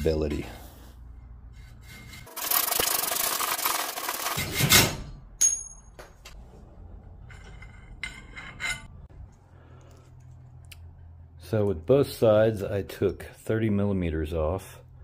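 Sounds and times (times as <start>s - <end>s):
sharp metallic clink: 5.4s - 6.1s.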